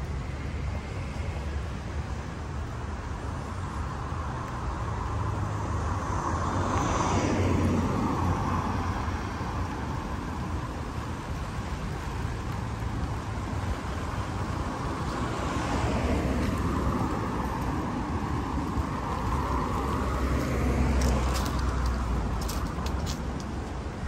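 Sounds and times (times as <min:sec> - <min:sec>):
cars driving past: 0:00.0 - 0:24.0.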